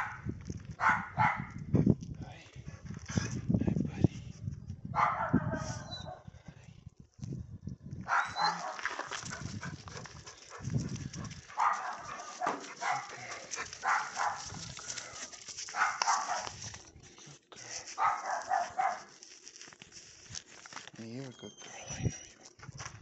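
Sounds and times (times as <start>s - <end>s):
dog barking: 0.0s - 0.2s, 0.8s - 1.6s, 5.0s - 6.3s, 8.1s - 9.4s, 11.5s - 14.6s, 15.7s - 16.6s, 18.0s - 19.1s.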